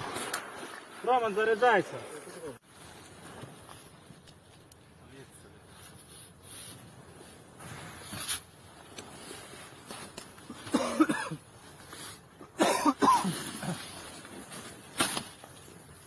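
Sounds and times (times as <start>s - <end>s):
low background noise: 0.0s - 16.0s
man coughing: 10.6s - 11.4s, 12.6s - 13.8s.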